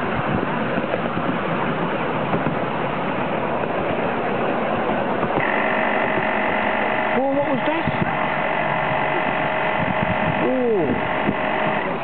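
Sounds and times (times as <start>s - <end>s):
wind on microphone: 0.0s - 12.0s.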